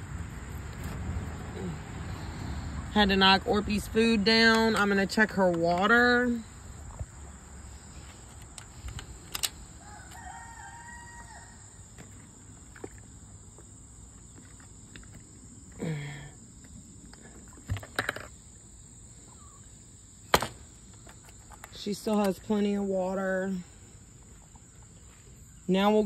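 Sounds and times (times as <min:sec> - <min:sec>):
rooster crowing faintly: 0:09.8 - 0:11.8.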